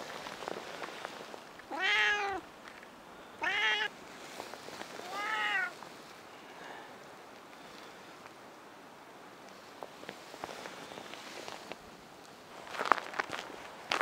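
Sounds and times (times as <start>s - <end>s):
cat meowing: 1.7s - 2.4s, 3.4s - 3.9s, 5.0s - 5.8s.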